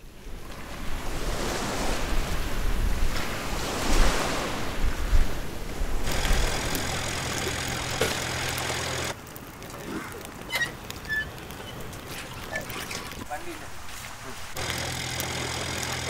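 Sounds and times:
sea waves washing onto beach: 0:00.3 - 0:16.0
low mechanical hum with whine: 0:06.1 - 0:09.2, 0:14.6 - 0:16.0.

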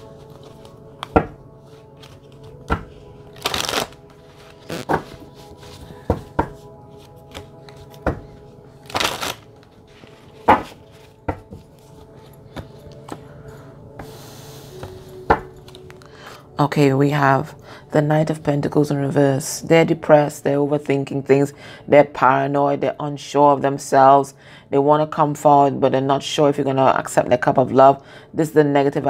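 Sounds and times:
cards snapping and slapping: 0:02.7 - 0:04.0, 0:08.9 - 0:09.5
cards riffling: 0:03.3 - 0:04.0, 0:08.8 - 0:09.5
cards set down on cloth: 0:04.7 - 0:08.2.

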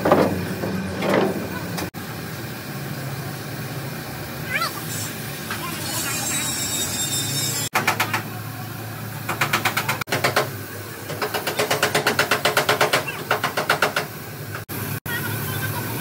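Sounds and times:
rapid hammer tapping metal: 0:09.3 - 0:14.1.

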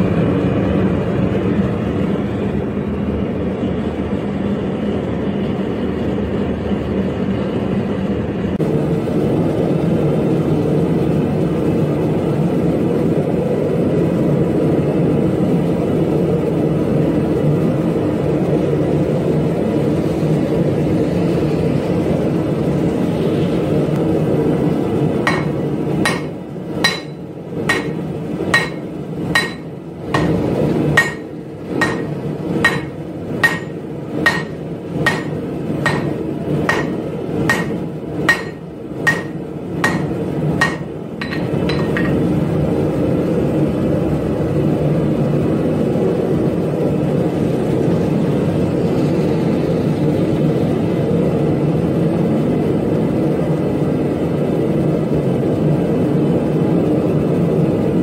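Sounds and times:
forge burner roaring: 0:00.0 - 0:58.0
hammer striking steel on anvil: 0:25.3 - 0:42.3.

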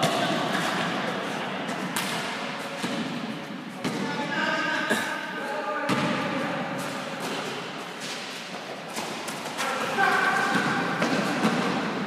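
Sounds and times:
players' voices: 0:00.0 - 0:12.0
basketball thumping: 0:05.9 - 0:06.2.

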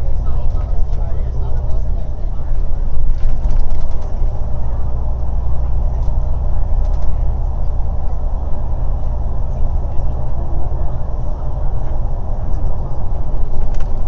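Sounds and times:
bus engine and road noise: 0:00.0 - 0:14.0.

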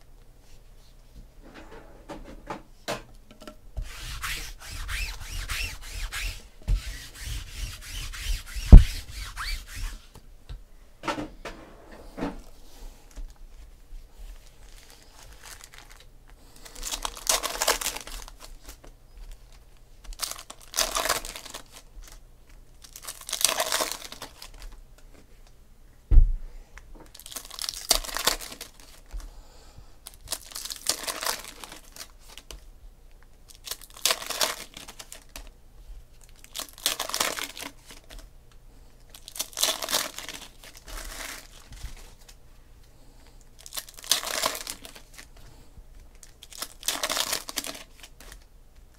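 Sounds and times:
sharp thump: 0:08.7 - 0:09.1
foil wrappers tearing and crinkling: 0:14.6 - 0:24.8, 0:27.1 - 0:29.1, 0:30.0 - 0:32.6, 0:33.5 - 0:35.5, 0:36.2 - 0:38.3, 0:39.1 - 0:42.4, 0:43.6 - 0:45.3, 0:46.0 - 0:48.5.

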